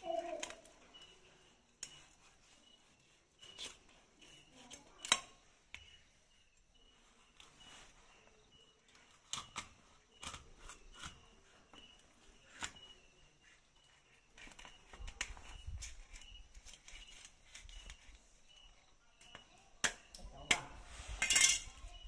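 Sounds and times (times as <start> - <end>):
knife scraping fish scales: 1.8 - 5.2.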